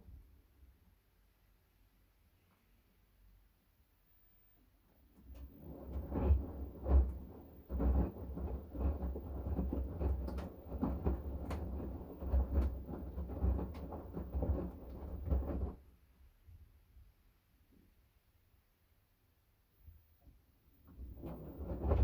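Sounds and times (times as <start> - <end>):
washing machine drum tumbling: 5.1 - 15.8, 20.8 - 22.0.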